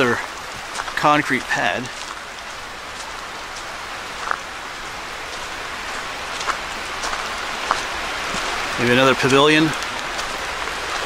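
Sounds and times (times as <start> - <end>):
flowing creek rushing: 0.0 - 11.0.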